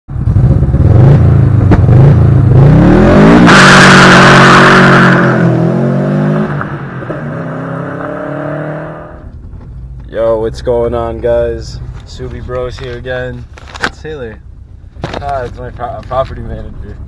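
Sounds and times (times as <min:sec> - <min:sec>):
car engine revving: 0:00.1 - 0:10.0.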